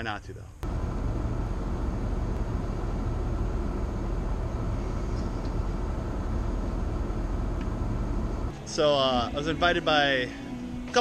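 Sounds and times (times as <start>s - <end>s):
car engine idling: 0.6s - 8.6s
ventilation fan blowing: 0.6s - 9.8s.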